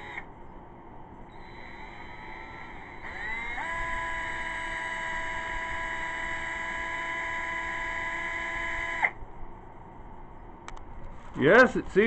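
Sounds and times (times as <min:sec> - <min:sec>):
cordless drill motor whining: 0:00.0 - 0:00.3, 0:01.3 - 0:09.2.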